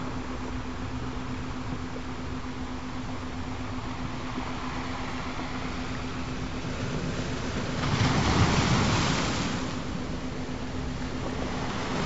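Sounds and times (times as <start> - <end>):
steady low hum: 0.0 - 12.0
ocean waves washing on shore: 3.7 - 12.0.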